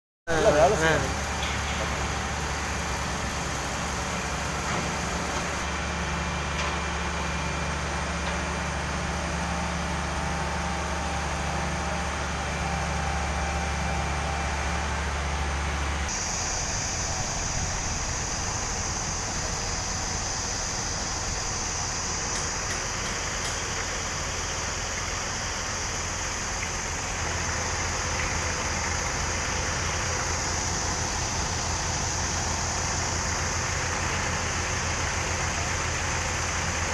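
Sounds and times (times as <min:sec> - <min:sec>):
diesel engine idling: 0:00.3 - 0:36.9
steady high hiss: 0:16.0 - 0:36.9.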